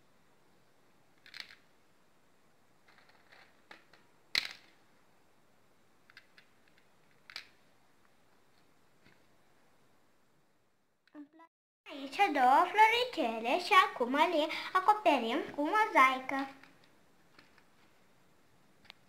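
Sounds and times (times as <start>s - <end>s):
plastic beads clicking on pegboard: 1.2s - 1.7s, 6.0s - 7.6s.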